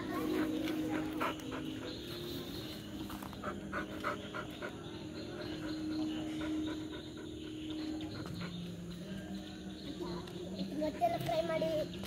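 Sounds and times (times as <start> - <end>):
dog panting: 0.0 - 9.1.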